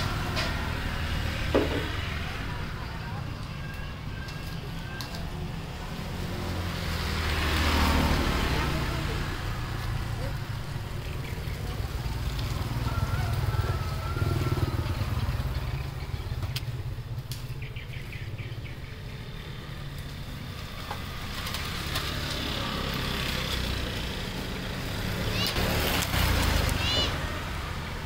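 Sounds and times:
vehicle engine rumbling: 0:00.0 - 0:28.0.

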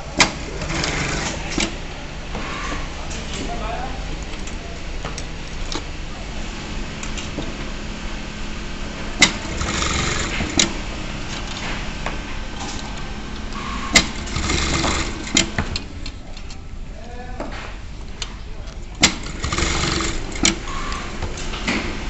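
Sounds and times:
sewing machine motor hum: 0:00.0 - 0:02.8, 0:06.7 - 0:16.2, 0:19.0 - 0:22.0
sharp machine click: 0:13.0 - 0:15.9, 0:19.0 - 0:21.2.

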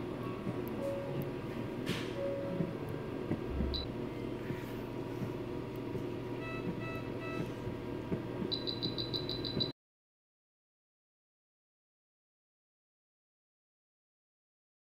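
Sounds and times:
room hum: 0:00.0 - 0:09.7
patient monitor beeps: 0:03.6 - 0:03.9, 0:06.4 - 0:07.6, 0:08.5 - 0:09.7.

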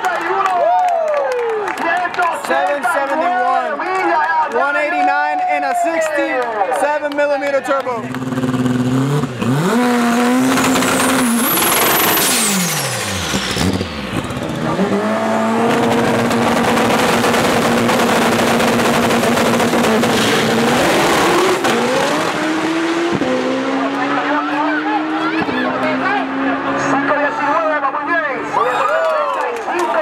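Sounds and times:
racing car engine revving with whine: 0:08.0 - 0:28.6.

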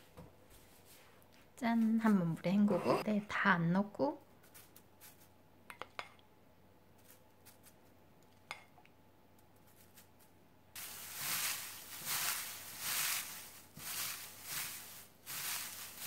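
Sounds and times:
crisp rustling crinkle: 0:06.9 - 0:07.9, 0:09.5 - 0:16.0.

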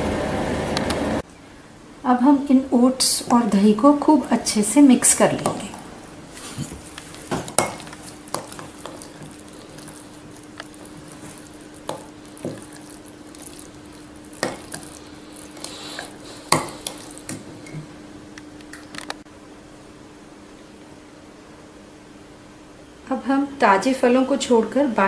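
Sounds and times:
faint steady hum: 0:00.0 - 0:25.0
spoon stirring in glass jar: 0:07.1 - 0:17.3.

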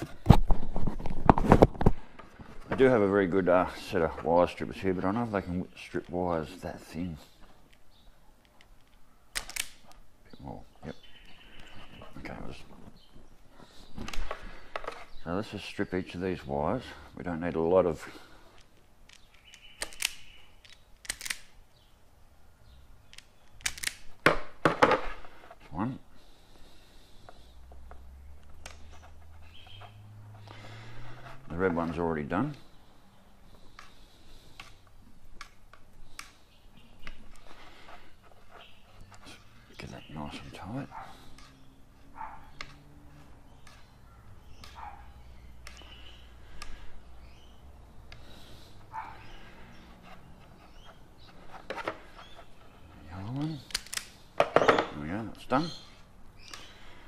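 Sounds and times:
wires clicking as twisted: 0:07.6 - 0:10.1, 0:18.5 - 0:21.6, 0:23.0 - 0:24.2, 0:45.5 - 0:46.9, 0:51.2 - 0:54.3
dog barking: 0:40.9 - 0:41.2, 0:42.1 - 0:42.6, 0:44.8 - 0:45.2, 0:48.9 - 0:49.2.

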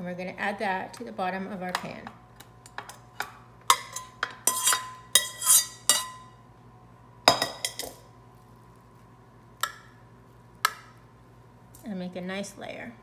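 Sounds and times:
metal spoon scraping steel bowl: 0:03.9 - 0:06.2.

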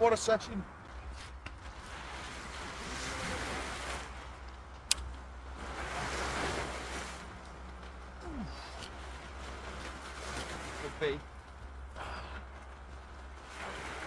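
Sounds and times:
sea waves washing in: 0:01.7 - 0:04.5, 0:05.2 - 0:14.0
sharp click: 0:04.9 - 0:05.1.

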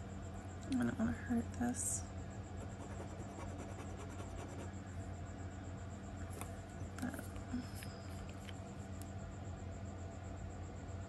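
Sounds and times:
electrical hum: 0:00.0 - 0:11.0.

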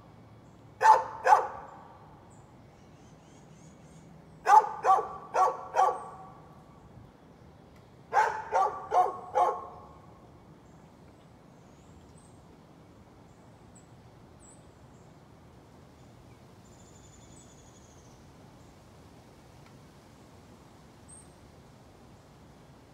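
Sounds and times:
dog barking: 0:00.8 - 0:01.7, 0:04.4 - 0:06.4, 0:08.1 - 0:09.9.

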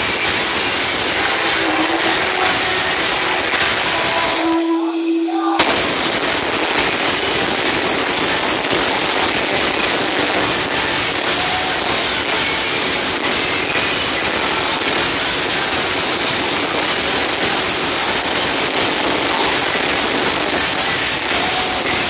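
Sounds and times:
distorted loud club music: 0:00.0 - 0:22.0
single held tone: 0:01.2 - 0:05.6.

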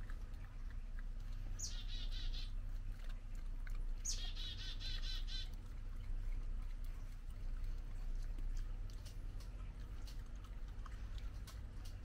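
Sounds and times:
small bird singing trills: 0:01.6 - 0:02.6, 0:04.0 - 0:05.6.

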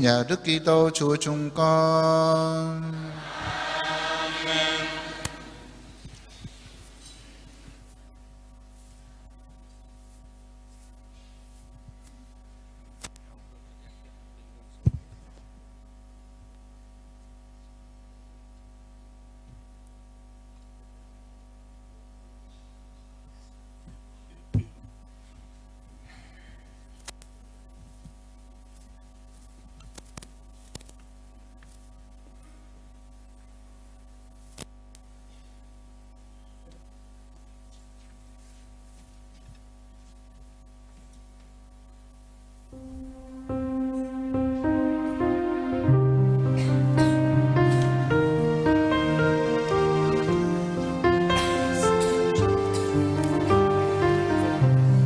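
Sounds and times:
electrical mains hum: 0:00.0 - 0:55.0.

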